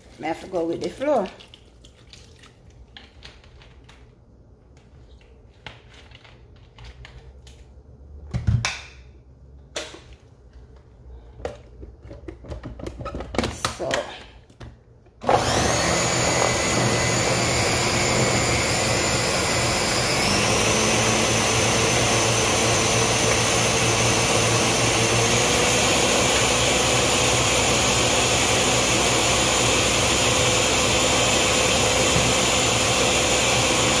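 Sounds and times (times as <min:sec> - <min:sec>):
blender running at high speed: 0:15.2 - 0:34.0.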